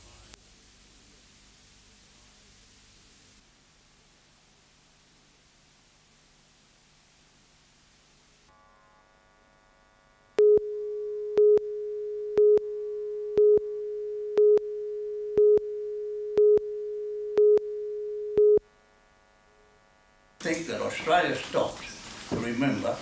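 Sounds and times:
steady line-up tone: 8.5 - 20.4
short beeps: 10.4 - 18.6.

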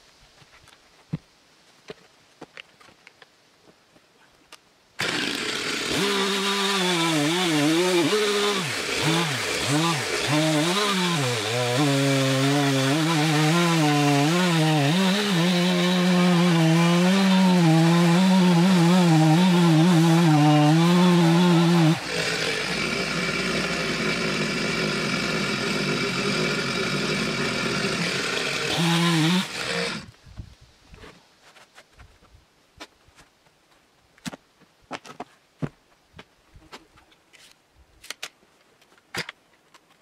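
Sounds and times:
chainsaw cutting log: 5.0 - 30.1.

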